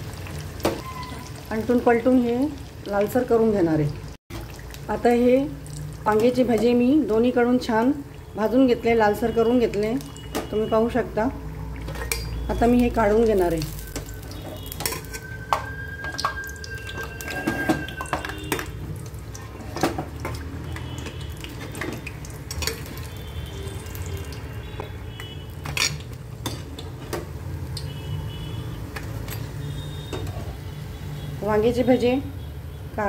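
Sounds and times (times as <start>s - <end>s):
metal spoon clinking on pan: 11.9s - 12.4s, 14.0s - 18.8s, 22.5s - 23.0s.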